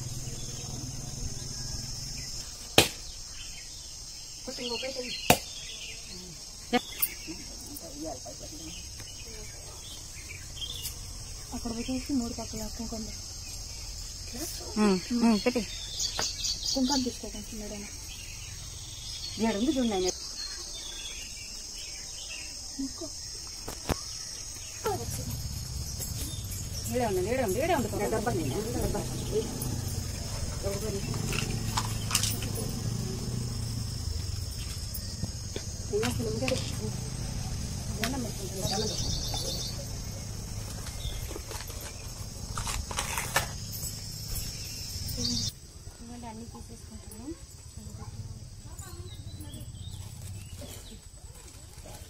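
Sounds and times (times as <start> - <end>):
insects shrilling: 0.0 - 52.0
coconut cracking on stone: 2.7 - 3.1, 5.3 - 5.5.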